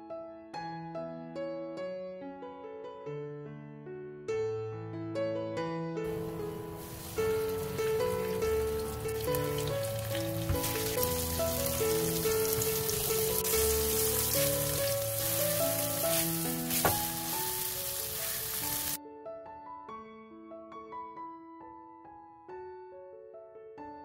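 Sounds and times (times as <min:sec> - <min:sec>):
soft plucked and piano music: 0:00.0 - 0:24.0
tofu sizzling in hot oil: 0:06.1 - 0:19.0.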